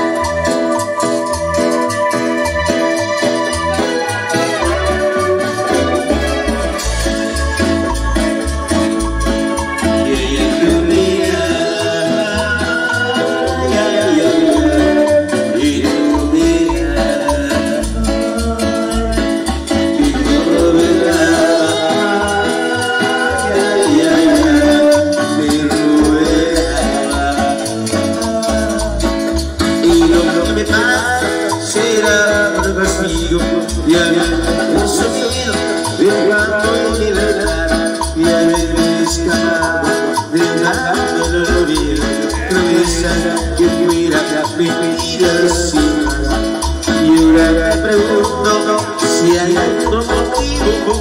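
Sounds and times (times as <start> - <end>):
keyboard melody: 0.0 - 51.0
steady bass beat: 1.3 - 48.6.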